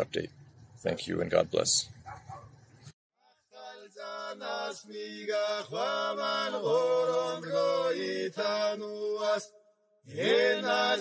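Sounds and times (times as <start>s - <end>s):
voices chanting a slow melody: 3.2s - 11.0s.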